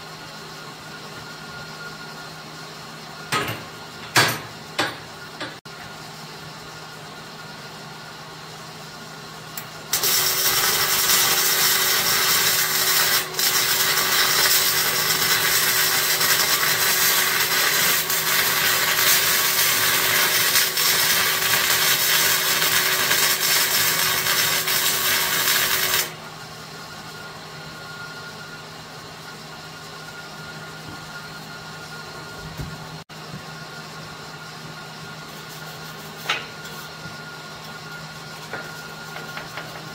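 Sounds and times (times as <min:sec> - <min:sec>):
welding arc crackling: 0:09.9 - 0:26.2.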